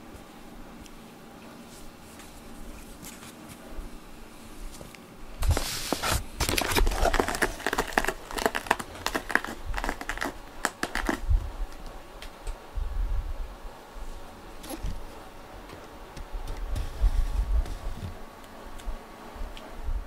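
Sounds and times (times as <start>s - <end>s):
cat claws scratching cardboard: 5.5s - 11.3s.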